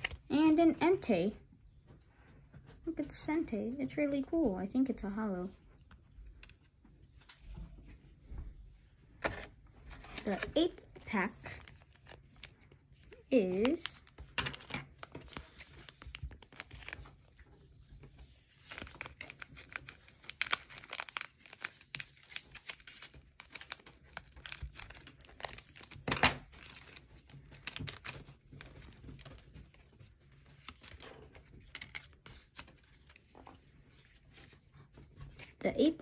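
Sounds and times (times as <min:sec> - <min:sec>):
foil wrapper crinkling: 0:10.0 - 0:34.6.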